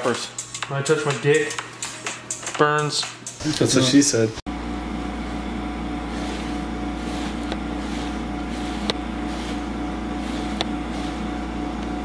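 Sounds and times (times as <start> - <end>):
low mechanical hum with whine: 3.4 - 12.0.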